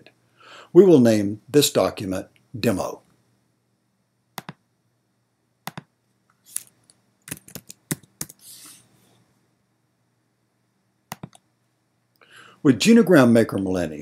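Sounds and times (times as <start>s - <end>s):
keyboard typing: 4.4s - 4.6s, 5.6s - 5.9s, 6.5s - 8.5s, 11.1s - 11.4s
trackpad clicks: 4.4s - 4.6s, 5.7s - 5.9s, 11.1s - 11.4s
soft hiss: 6.0s - 10.1s.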